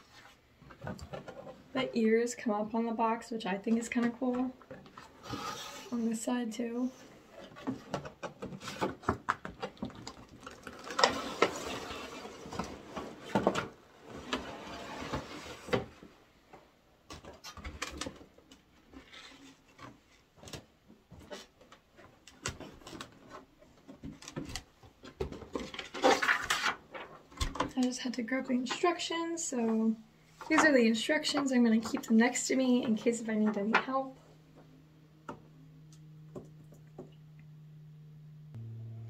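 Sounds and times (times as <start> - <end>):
cardboard and plastic rustling: 7.4 - 16.1, 17.1 - 27.8.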